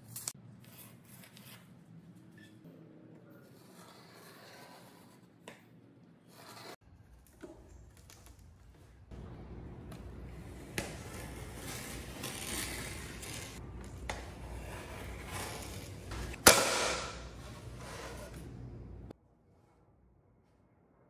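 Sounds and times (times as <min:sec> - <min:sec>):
knife scraping along wood: 0:03.4 - 0:05.3.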